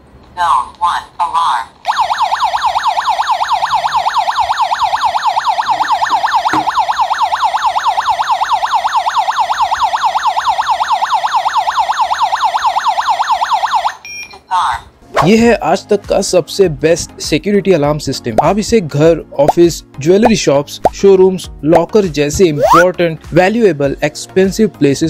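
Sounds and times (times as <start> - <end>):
alarm siren warbling: 1.9 - 14.0, 22.6 - 22.9.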